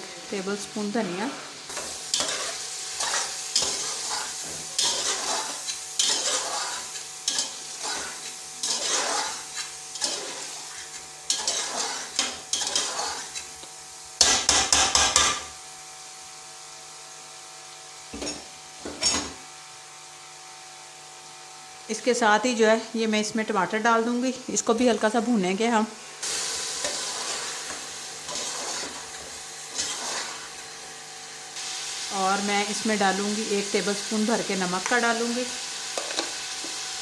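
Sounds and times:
meat sizzling in a pot: 0.0s - 37.0s
metal spoon scraping a pot: 1.7s - 13.5s, 26.8s - 30.6s.

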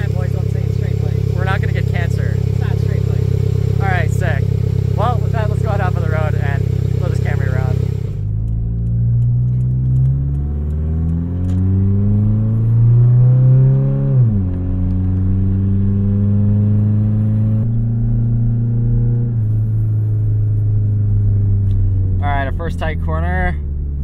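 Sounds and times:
exhaust spitting: 0.0s - 12.7s
loud car engine accelerating: 0.0s - 24.0s.

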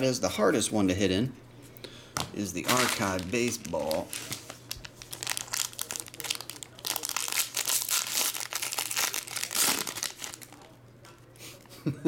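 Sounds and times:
foil wrapper crinkling: 2.6s - 10.8s.

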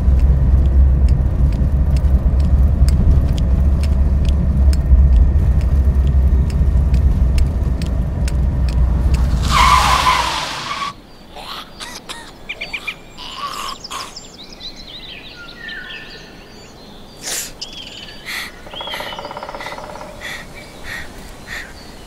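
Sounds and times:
songbirds chirping and trilling: 6.0s - 22.0s.

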